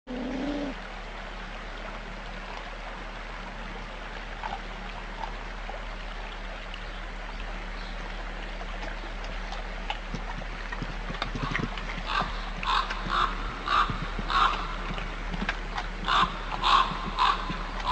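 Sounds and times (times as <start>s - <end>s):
wolf snarls: 0.1s - 0.8s
steady hiss and hum: 0.1s - 17.9s
wolves chewing and tearing meat: 4.4s - 5.9s, 8.6s - 17.9s.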